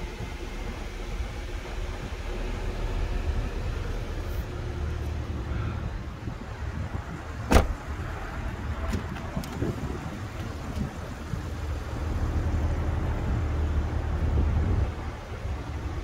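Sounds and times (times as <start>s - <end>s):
steady low rumble: 0.0s - 16.0s
car door shutting: 7.4s - 8.0s.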